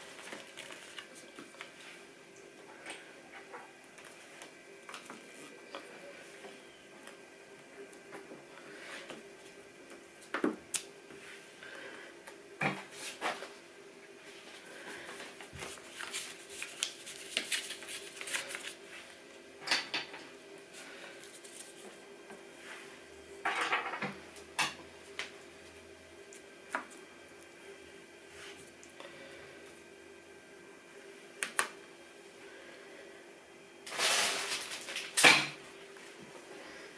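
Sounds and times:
paper rustling: 0.0 - 1.8, 15.4 - 19.0
steady hum: 0.0 - 36.9.

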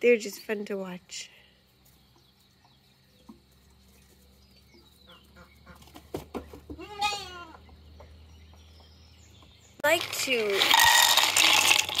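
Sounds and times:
farm animal call: 4.7 - 6.0, 6.7 - 8.1.

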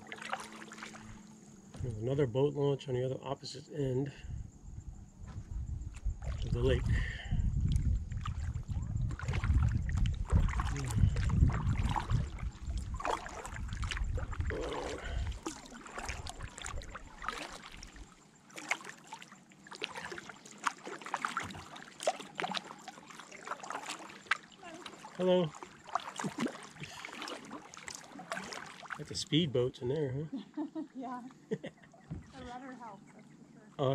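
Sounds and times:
paddle splashing in water: 0.0 - 2.0, 6.2 - 6.6, 7.7 - 29.3, 30.5 - 33.4
water lapping at plastic hull: 0.0 - 2.2, 5.9 - 33.9
low rumble: 4.3 - 15.4.

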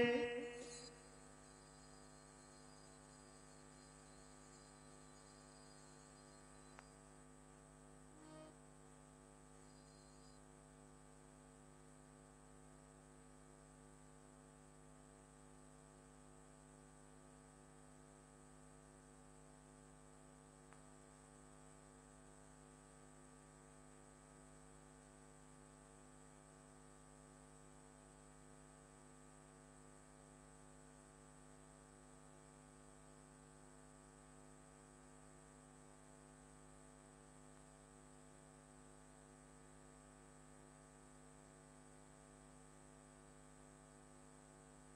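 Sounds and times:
faint electrical hum: 0.0 - 44.9
faint tick: 20.7 - 20.9, 37.5 - 37.7.

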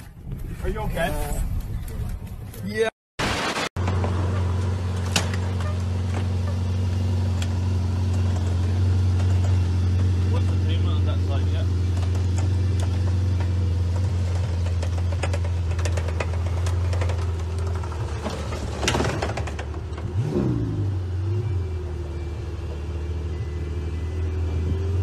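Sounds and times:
engine idling: 3.9 - 20.4
plastic bumper clicking and rattling: 14.3 - 20.1.

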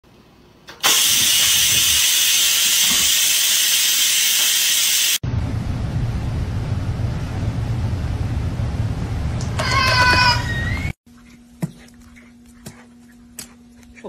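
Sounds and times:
pressure cooker steam hiss: 0.8 - 5.2
low steady rumble: 5.2 - 9.8.

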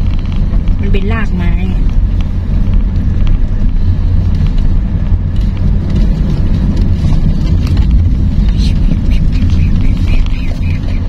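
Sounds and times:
car tyres and engine rumble: 0.0 - 11.0.

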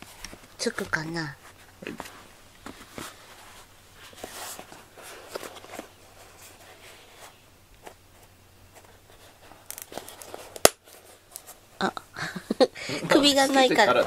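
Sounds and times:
foam collar rustling: 0.0 - 7.4.

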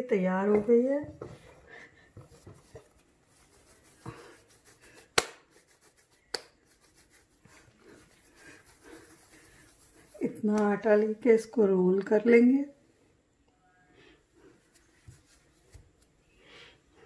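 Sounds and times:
hands handling bread dough: 0.4 - 10.8.

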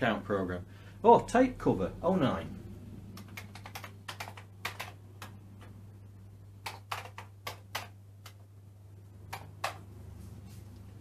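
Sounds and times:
steady low hum: 0.0 - 6.7
keyboard keystroke clicks: 9.3 - 9.8.

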